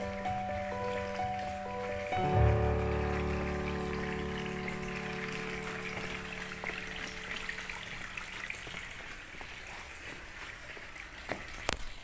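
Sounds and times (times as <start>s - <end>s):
held music chord: 0.0s - 8.1s
water drips: 0.0s - 12.0s
water trickling: 0.0s - 12.0s.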